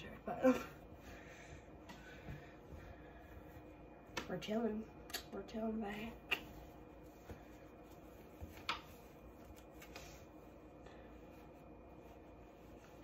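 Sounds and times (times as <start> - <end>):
hoodie fabric rustling: 5.8 - 13.0.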